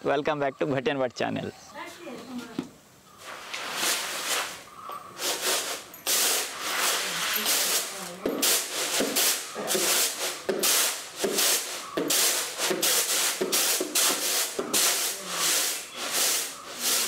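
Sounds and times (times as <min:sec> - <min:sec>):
rice rattling in bamboo trays: 0:05.2 - 0:17.0.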